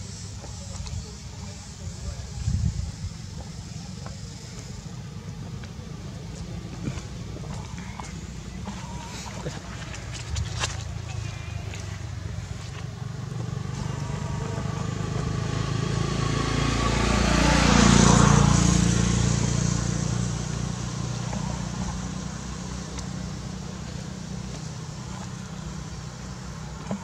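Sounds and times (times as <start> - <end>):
vehicle passing by: 6.7 - 27.0.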